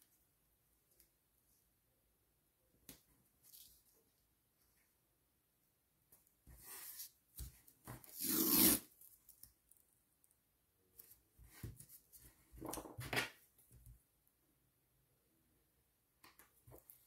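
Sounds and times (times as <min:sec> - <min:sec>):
tape peeling and rustling: 0:08.0 - 0:09.9.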